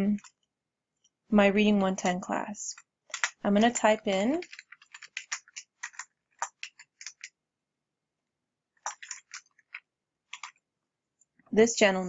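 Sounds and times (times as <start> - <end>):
keyboard typing: 2.0 - 7.4, 8.8 - 10.6.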